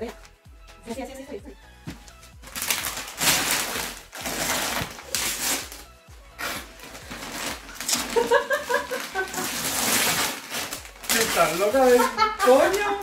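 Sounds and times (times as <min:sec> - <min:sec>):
wrapping paper tearing and crumpling: 0:02.4 - 0:13.0
woman laughing: 0:08.0 - 0:09.8, 0:11.8 - 0:13.0.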